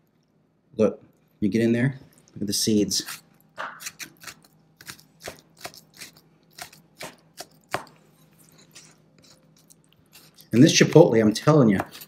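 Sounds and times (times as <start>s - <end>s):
knife chopping on wooden board: 3.1s - 8.0s, 11.7s - 12.0s.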